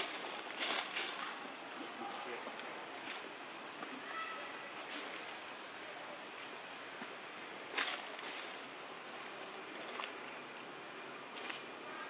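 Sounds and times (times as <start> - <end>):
dry leaves crackling: 0.0 - 3.4, 7.6 - 10.4
outdoor background hiss: 0.0 - 12.0.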